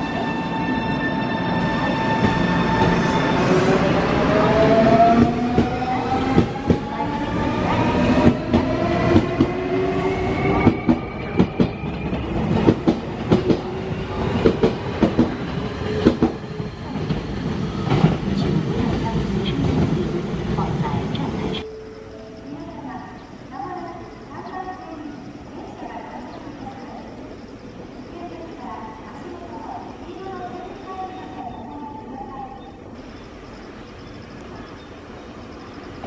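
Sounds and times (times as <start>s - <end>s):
electric train inverter whine: 20.5s - 31.8s, 32.9s - 36.0s.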